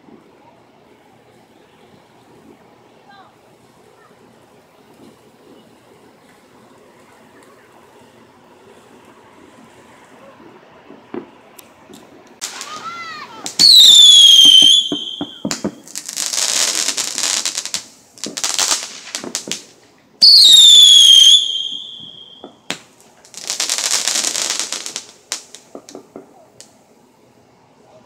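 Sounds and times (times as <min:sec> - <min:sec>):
firework crackling: 0:00.0 - 0:28.0
firework bangs: 0:01.8 - 0:26.8
firework whistles: 0:12.4 - 0:26.8.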